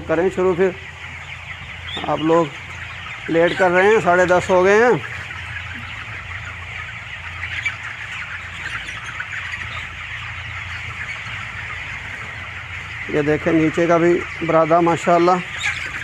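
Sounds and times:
chickens clucking and peeping: 0.0 - 16.0.

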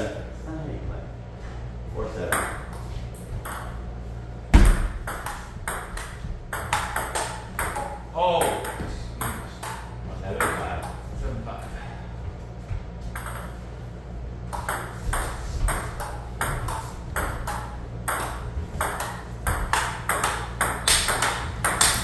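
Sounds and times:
ball bouncing on table: 2.3 - 3.8, 4.5 - 11.0, 13.0 - 13.6, 14.5 - 22.0
ball clicking off paddles: 5.0 - 11.0, 14.5 - 22.0.

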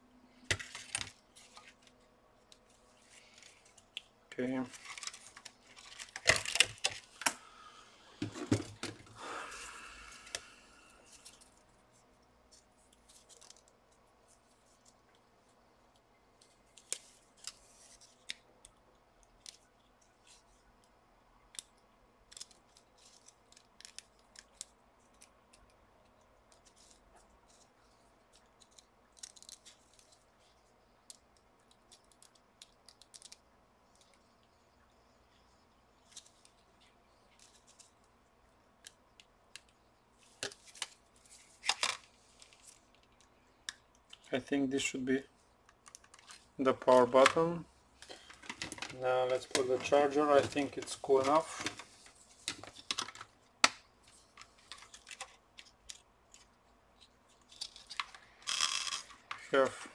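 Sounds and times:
plastic parts clattering and scraping: 4.6 - 7.4, 45.8 - 53.3
small clicks and rustles: 11.1 - 38.2, 38.8 - 44.3, 45.6 - 47.4.

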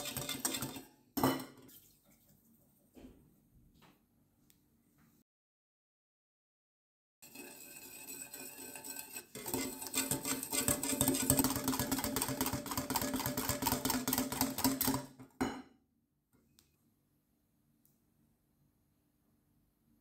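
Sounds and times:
whisk clinking against glass bowl: 0.0 - 1.5, 7.3 - 15.1
whisk knock against bowl: 9.4 - 15.3.

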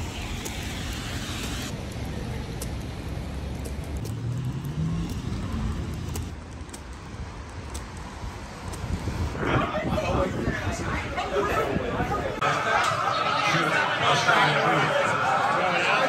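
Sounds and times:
rumble of passing traffic: 0.0 - 12.4
engine pulling away: 3.0 - 6.4.

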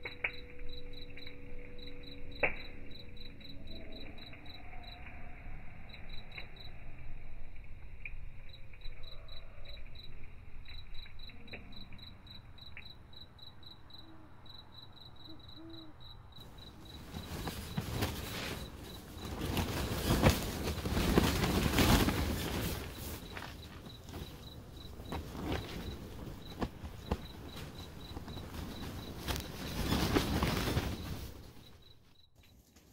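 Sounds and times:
wood stove fire crackling: 0.0 - 15.1, 16.2 - 32.9
cricket chirping: 0.0 - 32.7
wind gusting against tent: 16.4 - 31.9.

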